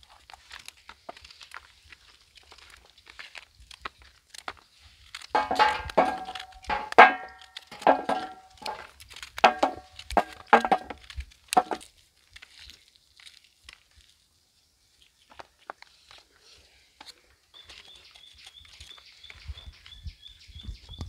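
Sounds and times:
knife chopping on metal plate: 5.4s - 8.8s.

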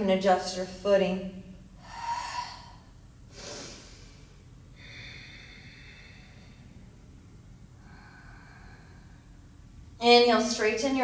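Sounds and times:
woman breathing: 1.7s - 10.0s.

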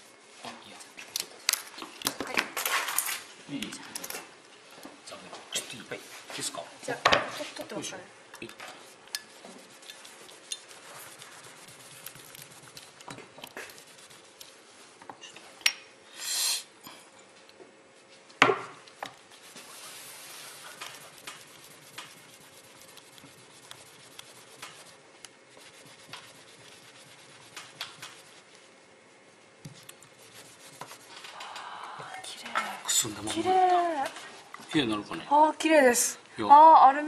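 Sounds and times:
tissue wiping test piece: 9.2s - 14.9s, 19.1s - 31.4s
short hiss: 16.1s - 16.7s.

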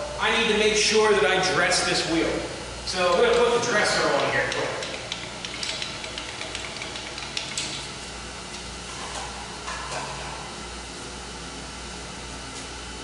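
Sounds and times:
grinder wheel spinning: 2.9s - 7.8s
small metallic clicks: 4.2s - 7.8s.

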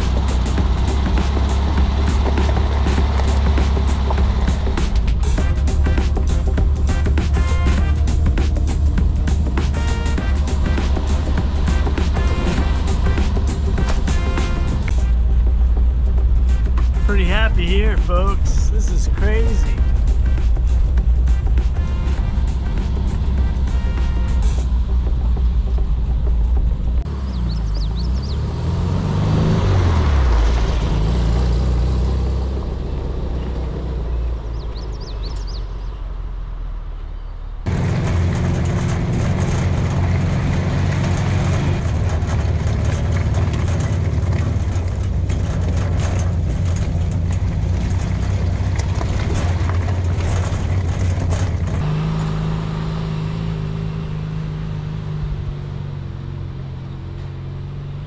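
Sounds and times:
knocks and rattles: 0.0s - 27.1s, 37.7s - 52.5s
van engine under load: 0.0s - 58.0s.

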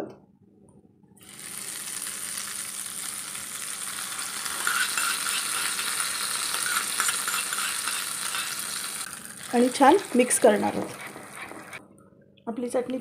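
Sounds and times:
hot oil sizzling: 1.2s - 11.8s
spoon scraping a pan: 4.4s - 8.9s, 10.6s - 11.8s.

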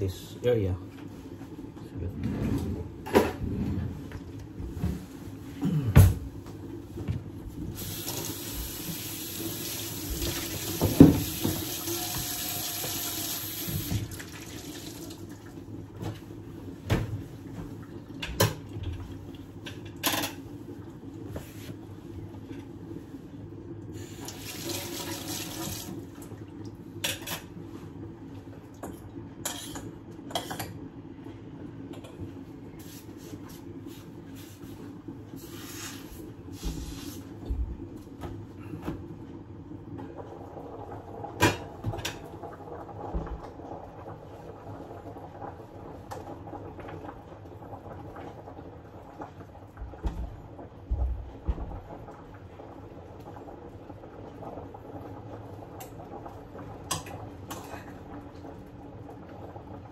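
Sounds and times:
tap running into sink: 10.1s - 14.2s.

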